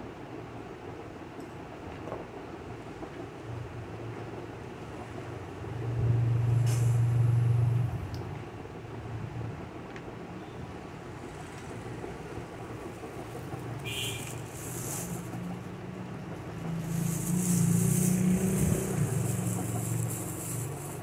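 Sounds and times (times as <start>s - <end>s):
cloth rubbing over microphone: 16.8s - 21.0s
scrape with squeak: 16.8s - 21.0s.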